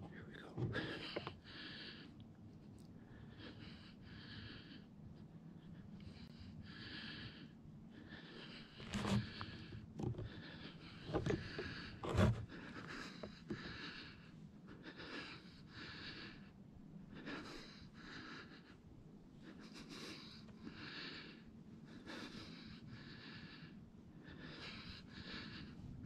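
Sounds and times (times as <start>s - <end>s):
heavy breathing: 0.0s - 2.2s, 3.0s - 26.0s.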